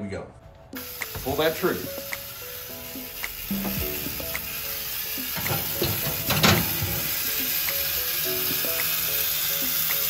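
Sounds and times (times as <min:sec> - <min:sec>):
background music: 0:00.0 - 0:10.0
steady hiss: 0:00.8 - 0:10.0
loud clunk of rotisserie: 0:05.3 - 0:07.2.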